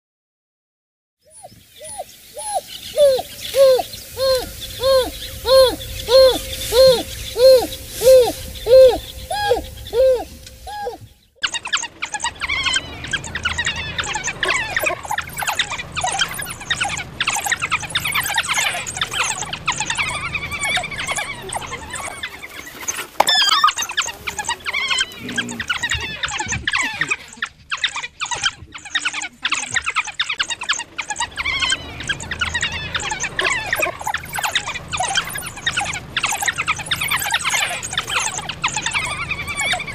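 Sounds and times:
wild dog hooting calls: 1.3s - 11.1s
wild dogs chirping and squealing: 1.3s - 39.9s.

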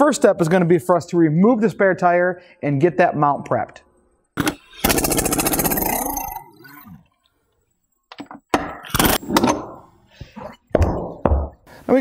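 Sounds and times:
impact wrench rattling: 4.4s - 5.8s.

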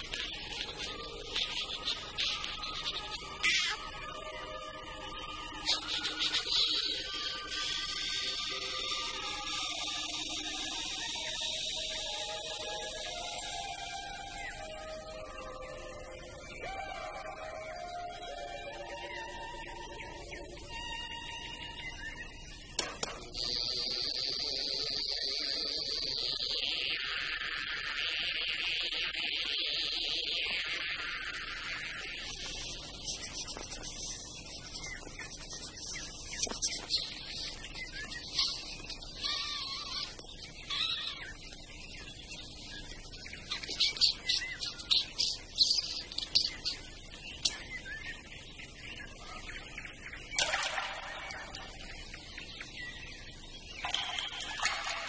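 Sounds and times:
cartoon squeaks and chirps: 2.9s - 3.9s, 38.3s - 41.4s.

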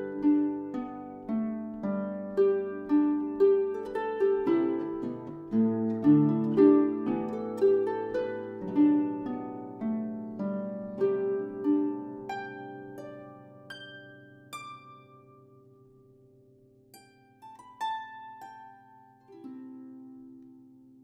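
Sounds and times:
harp plucked notes: 0.0s - 16.3s.

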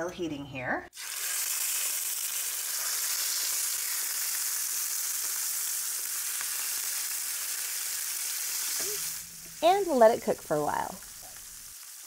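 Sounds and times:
chicken sizzling in a frying pan: 0.9s - 12.0s
faint crackles: 8.4s - 12.0s.

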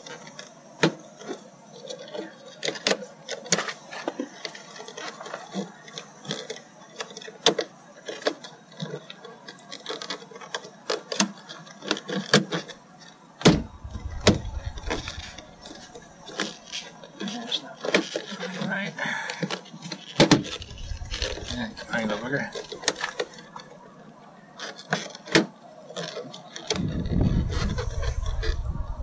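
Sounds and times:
low rumble: 13.5s - 15.8s, 20.5s - 22.0s, 26.8s - 29.0s.

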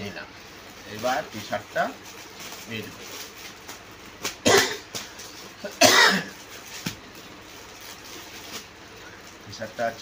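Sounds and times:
plastic packet crinkling: 0.5s - 10.0s
person coughing: 4.4s - 4.9s, 5.7s - 6.4s.

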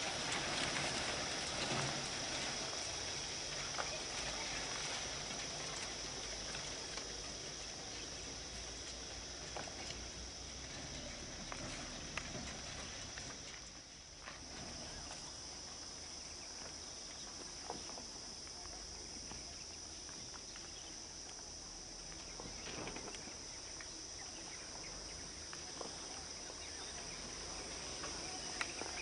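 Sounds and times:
insects droning: 0.0s - 29.0s.

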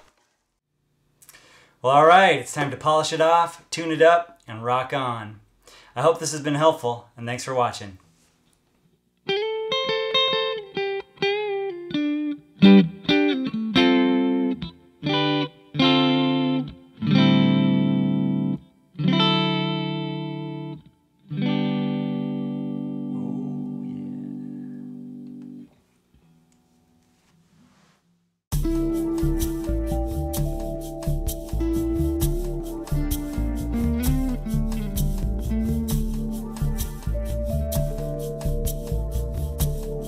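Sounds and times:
electric guitar playing: 9.2s - 25.7s, 28.5s - 40.0s.

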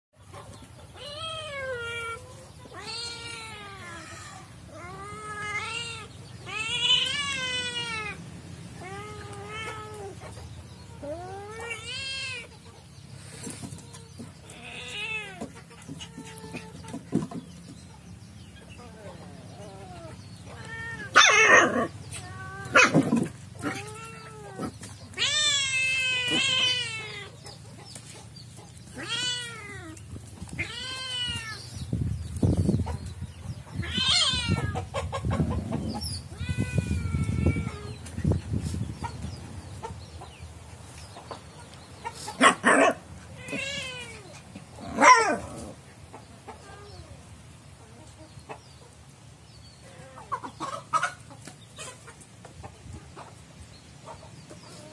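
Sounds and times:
cat meowing and yowling: 1.0s - 8.2s, 8.8s - 10.2s, 19.6s - 23.0s, 23.6s - 27.4s, 29.0s - 30.0s, 30.6s - 31.8s, 33.8s - 34.8s, 36.0s - 38.0s.

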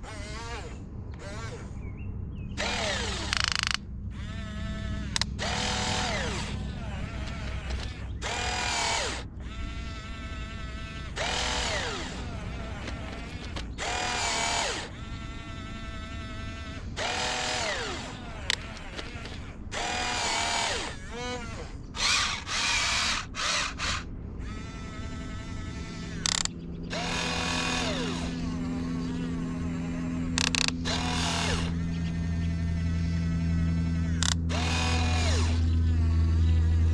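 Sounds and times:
electric motors whirring through gears: 0.0s - 36.9s
steady low hum: 0.0s - 36.9s.

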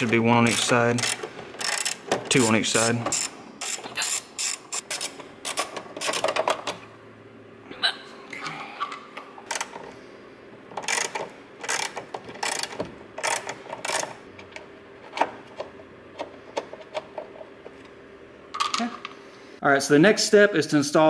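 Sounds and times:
socket ratchet clicking: 0.6s - 2.0s, 10.8s - 14.2s.

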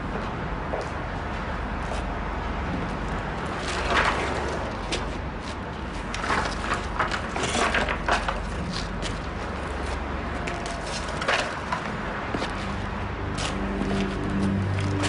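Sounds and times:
debris cracking underfoot: 6.1s - 9.4s
low steady hum: 12.7s - 15.0s.

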